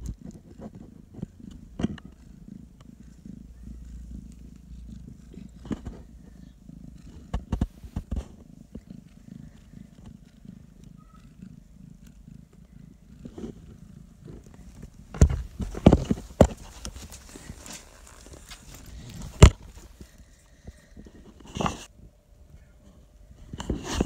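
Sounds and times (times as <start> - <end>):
cat purring: 0.0 - 22.0
sharp knocks and rustles: 7.1 - 8.9, 13.2 - 20.2.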